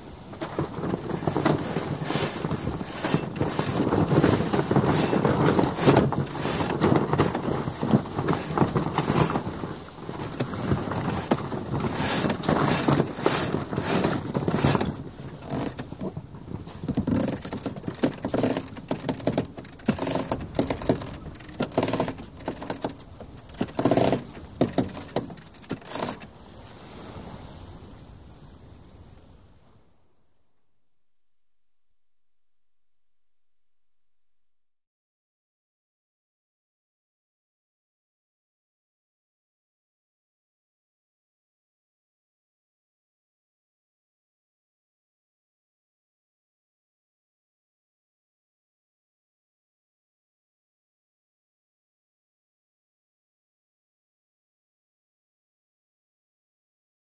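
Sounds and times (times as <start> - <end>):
sails flapping: 0.0 - 30.5
winch ratcheting: 0.4 - 26.3.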